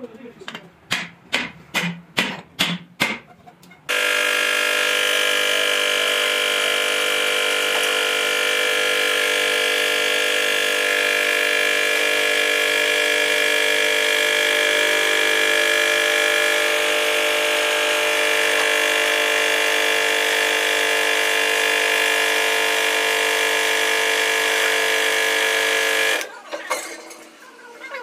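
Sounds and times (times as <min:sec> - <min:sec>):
press pump motor humming: 0:03.9 - 0:26.3.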